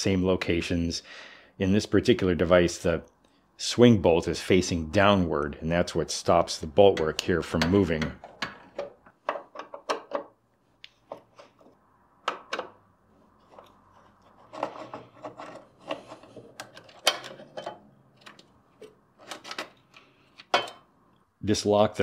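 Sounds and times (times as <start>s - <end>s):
metal-on-metal scraping: 13.2s - 19.7s.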